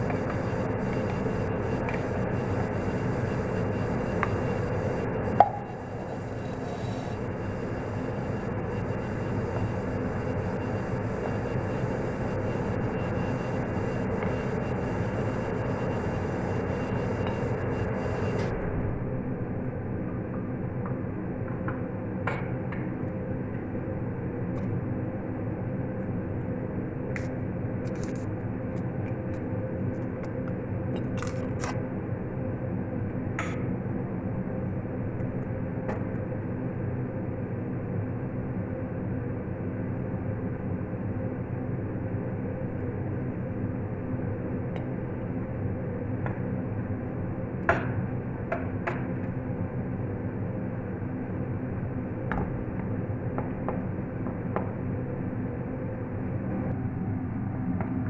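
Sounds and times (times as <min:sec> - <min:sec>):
kitchen hum: 0:05.4 - 0:07.2.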